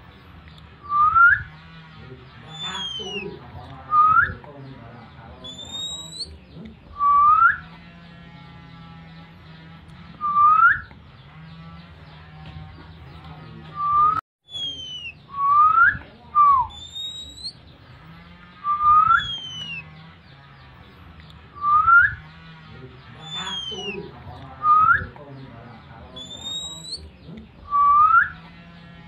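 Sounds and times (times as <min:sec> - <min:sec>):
bird twittering: 0:00.0 - 0:28.9
bird whistling call: 0:00.8 - 0:01.5, 0:02.5 - 0:03.3, 0:05.4 - 0:06.3, 0:07.0 - 0:07.7, 0:10.2 - 0:10.9, 0:13.8 - 0:17.6, 0:18.6 - 0:19.9, 0:21.6 - 0:22.2, 0:23.2 - 0:24.0, 0:26.2 - 0:27.0, 0:27.7 - 0:28.4.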